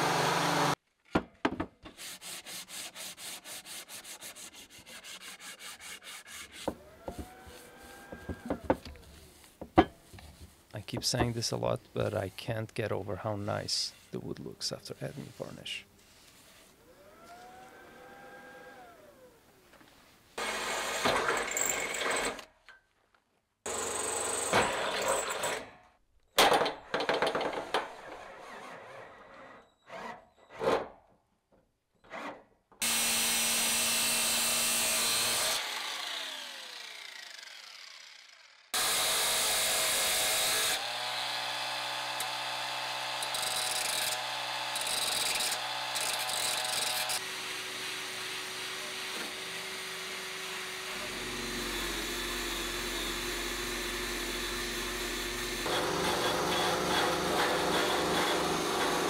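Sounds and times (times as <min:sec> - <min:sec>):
power tools running in bursts: 0:00.0 - 0:00.8, 0:17.0 - 0:19.3, 0:20.4 - 0:22.3, 0:32.8 - 0:59.0.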